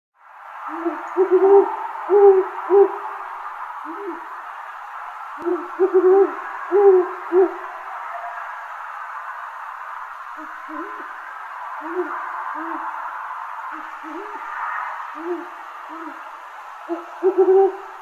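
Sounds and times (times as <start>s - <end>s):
background hiss: 0.2s - 18.0s
owl hooting: 0.6s - 3.2s, 3.8s - 4.4s, 5.4s - 7.7s, 10.3s - 18.0s.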